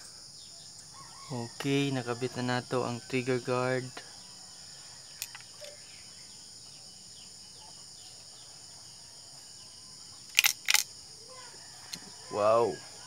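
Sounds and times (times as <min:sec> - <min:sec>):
high-pitched insect chorus: 0:00.0 - 0:13.0
speargun clicks: 0:10.3 - 0:10.9.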